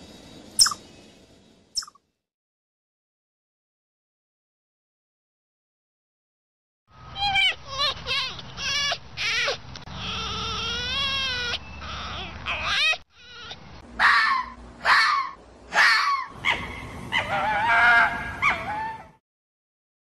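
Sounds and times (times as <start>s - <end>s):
fox yelps and screams: 7.0s - 19.2s.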